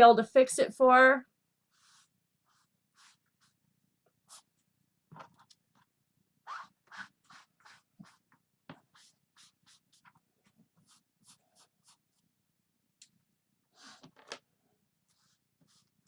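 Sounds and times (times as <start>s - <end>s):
scratchy hand rubbing: 1.7s - 3.6s, 6.5s - 10.2s.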